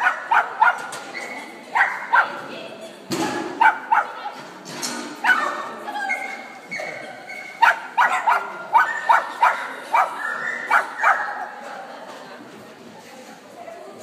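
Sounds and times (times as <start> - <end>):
dog barking: 0.0 - 0.9, 1.8 - 2.4, 3.6 - 4.2, 7.6 - 11.4.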